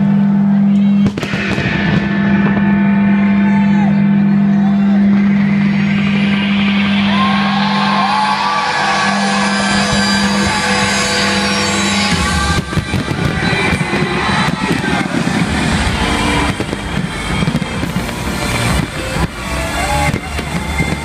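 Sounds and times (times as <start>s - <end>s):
steady low tone: 0.0s - 21.0s
fireworks whistling: 0.7s - 3.8s, 4.9s - 21.0s
fireworks shells bursting: 5.5s - 21.0s
fireworks crackling hiss: 9.4s - 21.0s.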